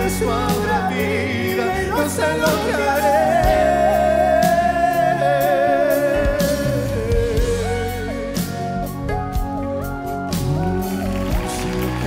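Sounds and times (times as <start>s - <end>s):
two men singing ballad duet: 0.0s - 8.6s
instrumental accompaniment: 0.0s - 12.0s.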